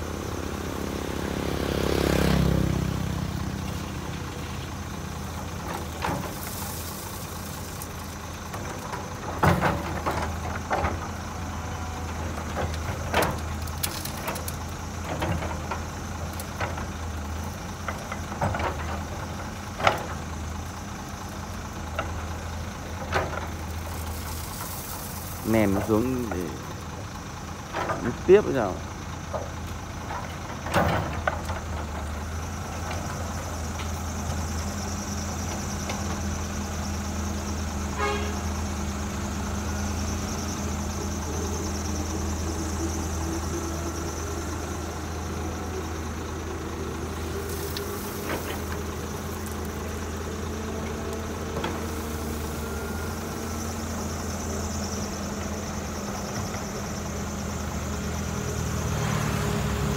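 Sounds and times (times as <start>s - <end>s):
excavator diesel engine running: 0.0s - 59.9s
hydraulic whine: 30.6s - 59.9s.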